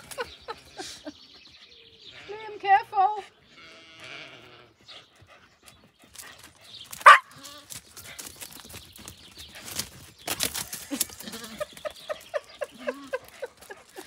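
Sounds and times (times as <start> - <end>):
animals running on grass: 5.8 - 14.0.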